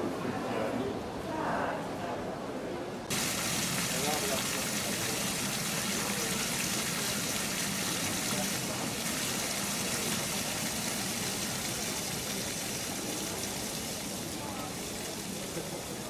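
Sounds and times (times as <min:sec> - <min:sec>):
fountain water splashing: 0:03.1 - 0:16.0.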